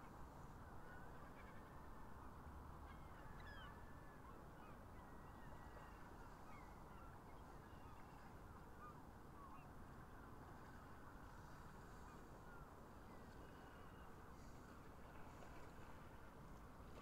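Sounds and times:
low steady hiss: 0.0 - 17.0.

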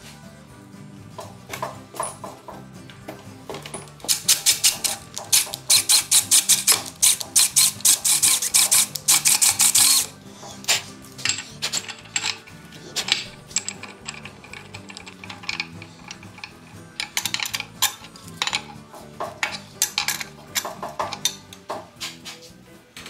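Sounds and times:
background music: 0.0 - 23.0
wrench clicking on metal bolts: 3.6 - 21.7.

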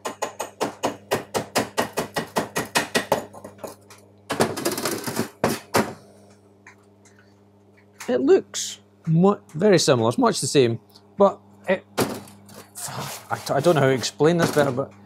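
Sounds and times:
steady low hum: 0.0 - 15.0
scratchy scrubbing strokes: 12.8 - 14.1.

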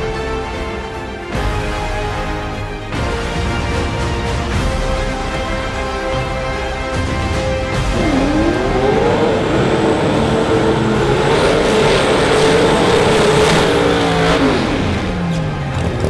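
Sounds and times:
racing car engines revving high: 5.2 - 16.0.

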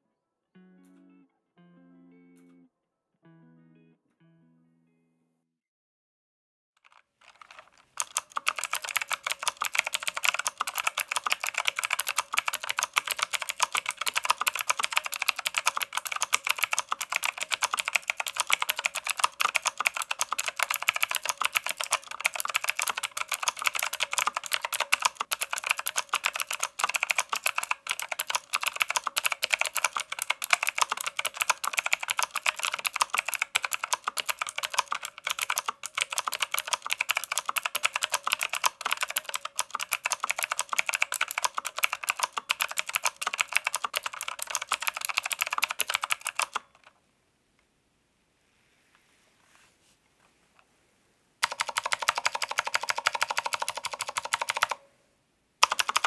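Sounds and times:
fast typing on mechanical keyboard: 6.8 - 46.9, 51.4 - 54.8, 55.6 - 56.0.

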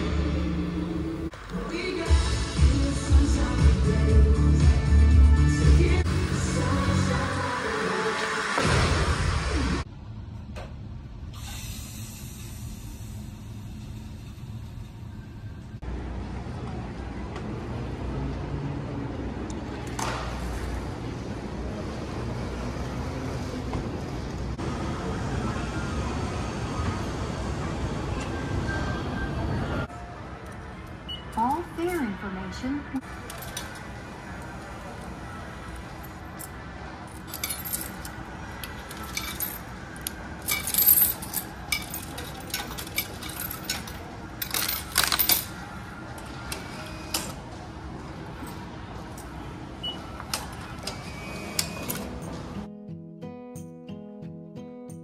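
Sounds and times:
traffic rumble: 5.8 - 52.7
coins clinking into coin slot: 36.4 - 45.6.

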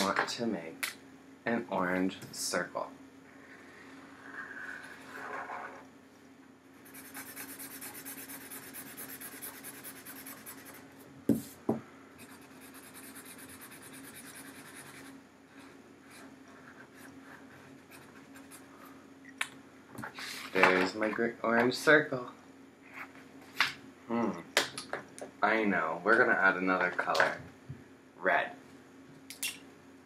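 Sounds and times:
marker scribbling on paper: 6.8 - 11.5, 12.2 - 15.1.

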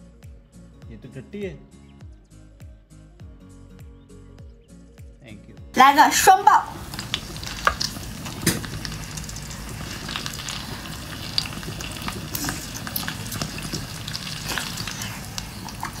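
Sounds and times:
crackly hiss: 6.8 - 16.0.

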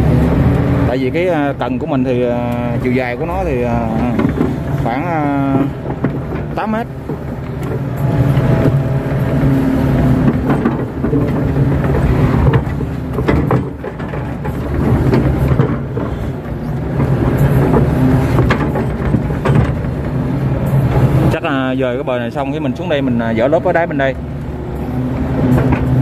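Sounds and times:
excavator diesel engine running: 0.0 - 26.0
bucket clunks and knocks: 10.2 - 16.3.

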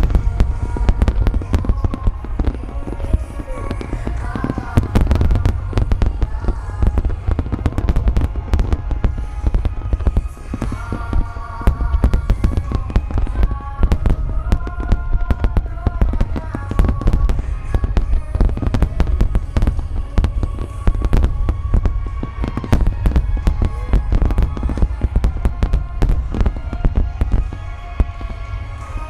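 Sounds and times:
deep rumble: 0.0 - 29.0
firework shells bursting: 0.0 - 29.0
music with held notes: 0.0 - 29.0.

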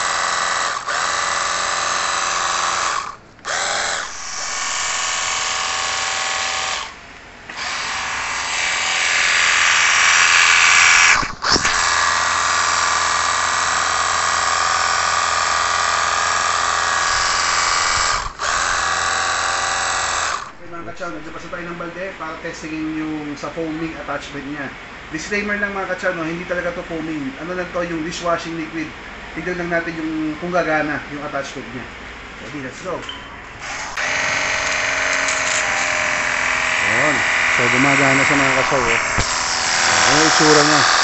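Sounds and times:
pressure washer motor whining: 0.0 - 22.1, 33.6 - 41.0
water jet hissing on concrete: 37.8 - 41.0.

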